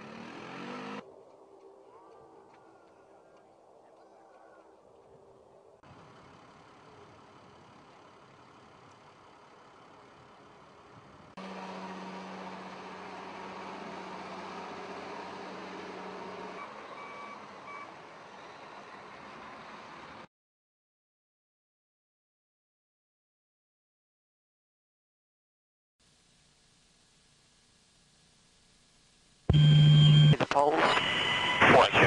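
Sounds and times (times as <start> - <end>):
engine noise: 0.0 - 1.0, 5.9 - 20.3
short high beeps: 29.5 - 31.6.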